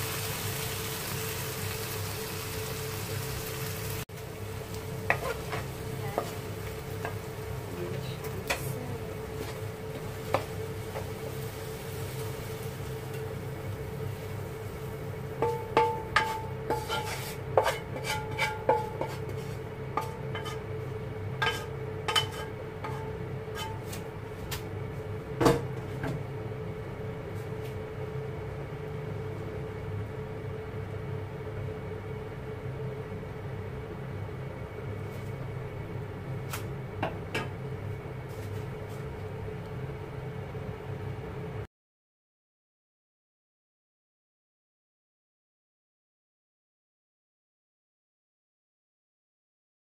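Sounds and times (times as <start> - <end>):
low background hum: 0.0 - 41.7
wooden spatula scraping a pan: 4.8 - 12.6, 15.4 - 24.4.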